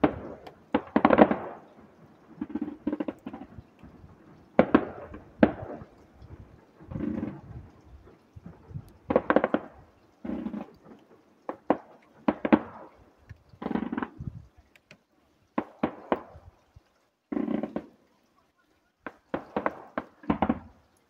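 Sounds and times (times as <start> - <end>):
fireworks bangs with echoing rumble: 0.0 - 7.6, 8.4 - 10.8, 11.5 - 12.9, 19.1 - 20.8.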